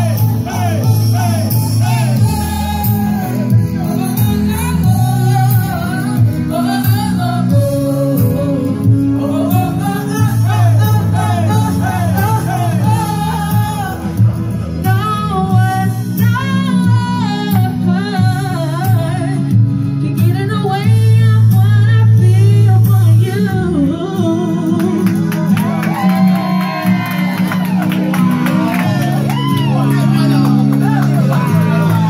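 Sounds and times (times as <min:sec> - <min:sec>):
women singing into microphones: 0:00.0 - 0:25.4
backing music with bass line: 0:00.0 - 0:32.0.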